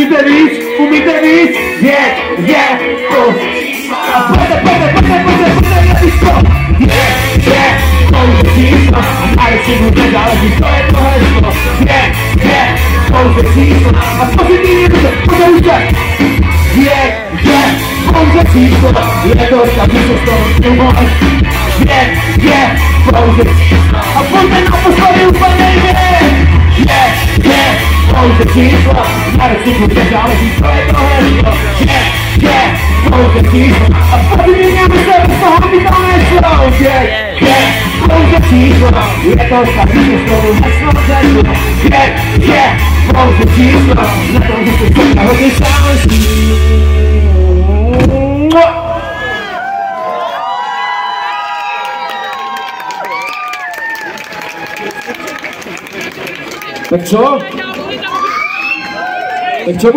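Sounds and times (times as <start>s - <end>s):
live band music: 0.0s - 49.4s
pulsing bass line: 1.8s - 49.1s
drum beat: 4.0s - 16.9s, 17.5s - 46.8s.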